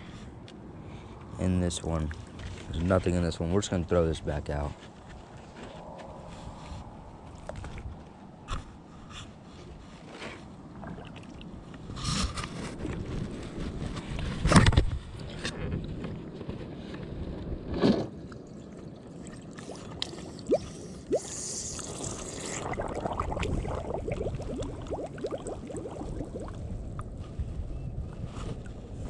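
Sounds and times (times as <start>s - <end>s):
pond water splashing: 10.7s - 11.7s, 19.0s - 27.1s
water gurgling and bubbling: 19.3s - 27.1s.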